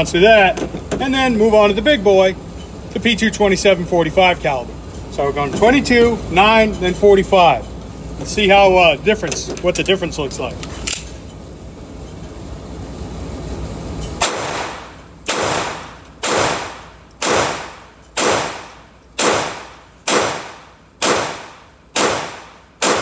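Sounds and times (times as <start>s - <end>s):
pistol shots echoing: 14.2s - 23.0s.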